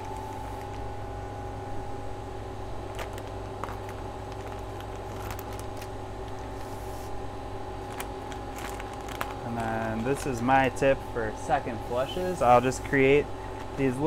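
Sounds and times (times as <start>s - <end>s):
machine hum: 0.0s - 14.0s
plastic bag crinkling: 2.9s - 6.9s, 7.8s - 10.5s.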